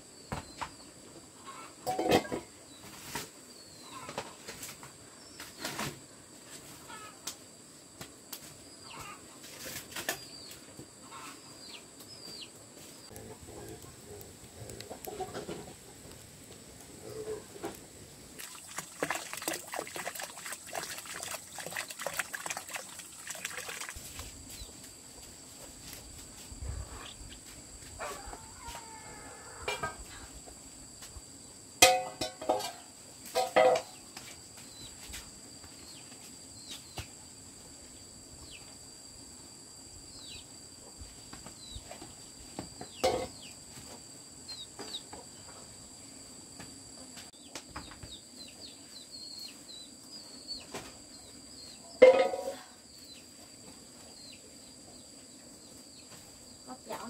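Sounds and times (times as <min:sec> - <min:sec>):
chickens clucking and squawking: 0:01.2 - 0:02.4, 0:11.0 - 0:11.6, 0:13.1 - 0:16.2, 0:27.9 - 0:30.3.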